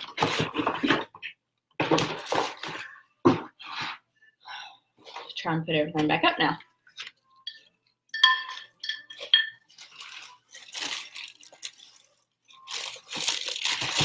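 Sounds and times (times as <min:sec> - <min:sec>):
box and packing rustling: 0:00.0 - 0:04.0, 0:09.7 - 0:14.0
ceramic clinks: 0:07.5 - 0:09.6.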